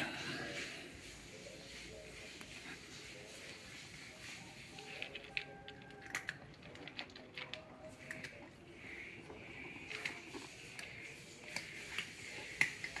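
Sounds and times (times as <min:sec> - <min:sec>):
cat crunching dry kibble: 0:04.8 - 0:13.0.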